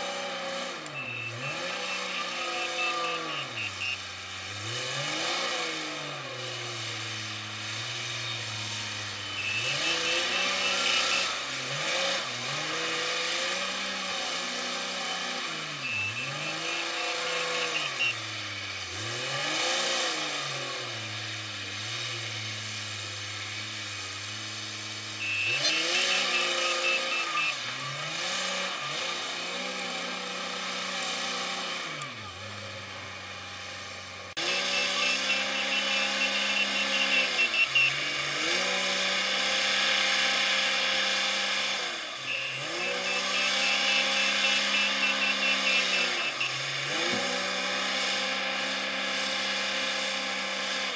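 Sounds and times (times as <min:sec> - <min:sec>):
diesel engine revving: 0:00.0 - 0:50.9
reverse alarm beeps: 0:00.8 - 0:04.1, 0:08.1 - 0:11.5, 0:15.5 - 0:18.3, 0:25.2 - 0:27.8, 0:34.4 - 0:38.1, 0:42.1 - 0:46.6.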